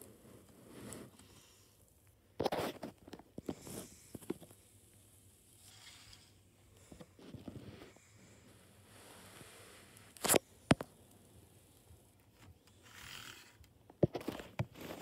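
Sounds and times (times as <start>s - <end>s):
rustling and clicking handling noise: 2.0s - 4.6s, 11.8s - 15.0s.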